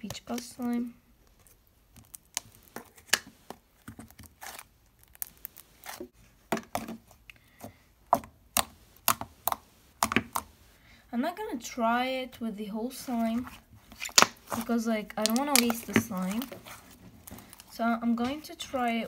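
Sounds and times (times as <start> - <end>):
fingers squishing sticky slime: 1.4 - 10.6, 13.1 - 19.0.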